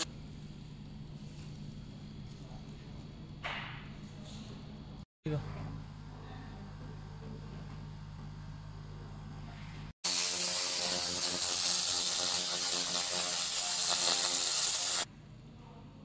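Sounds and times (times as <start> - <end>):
laser beam hissing crackle: 10.1 - 15.1.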